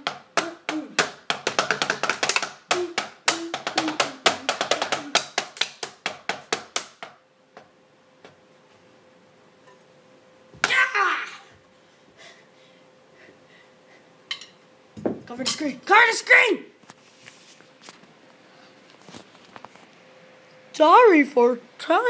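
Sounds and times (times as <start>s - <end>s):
drumsticks tapping: 0.0s - 8.4s.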